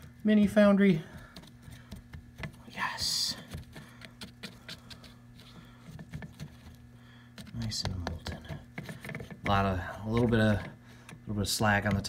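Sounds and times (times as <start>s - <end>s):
steady low hum: 0.0s - 12.0s
metal tongs scraping crucible: 7.4s - 11.9s.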